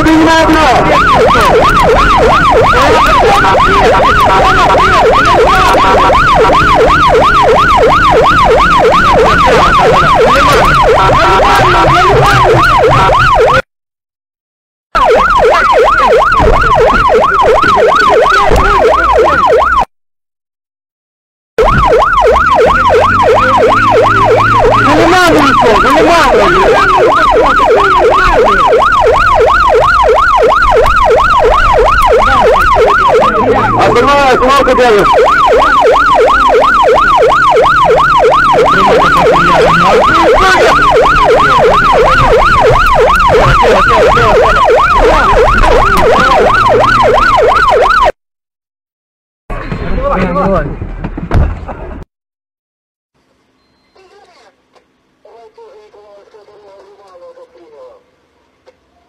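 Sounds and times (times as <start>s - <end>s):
police siren yelping: 0.0s - 13.7s, 15.0s - 19.9s, 21.6s - 48.2s.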